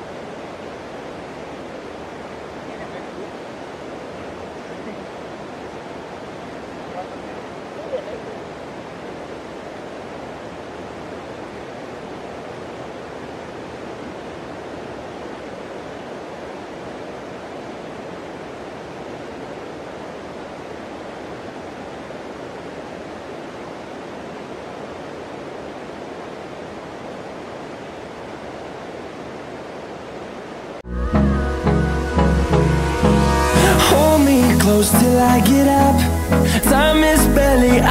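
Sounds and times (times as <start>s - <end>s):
stream water rushing: 0.0s - 37.9s.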